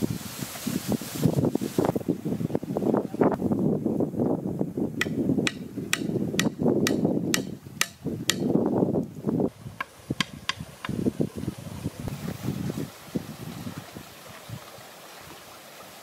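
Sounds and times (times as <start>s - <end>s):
wood-on-wood knocks: 5.0s - 8.5s.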